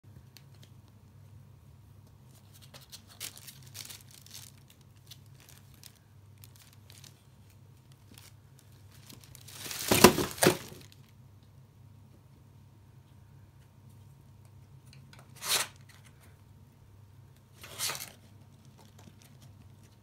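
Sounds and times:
plastic bag crinkling: 2.5 - 11.1.

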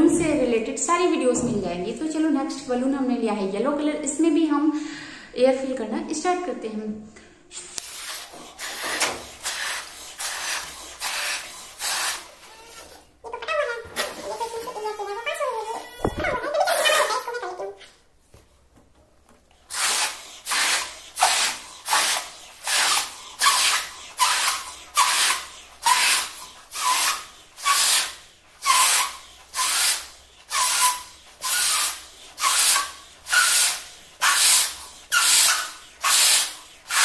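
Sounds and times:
breathy puffs blowing balloon: 7.5 - 13.1, 14.2 - 17.0, 19.7 - 37.0.

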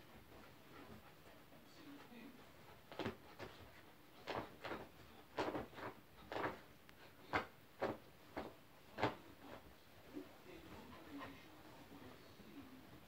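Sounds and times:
dog scratching bedding: 2.9 - 6.7.

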